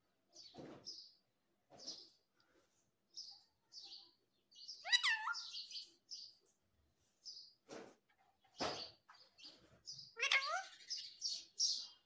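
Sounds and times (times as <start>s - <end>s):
parakeet chirping: 4.6s - 5.9s, 9.9s - 11.9s.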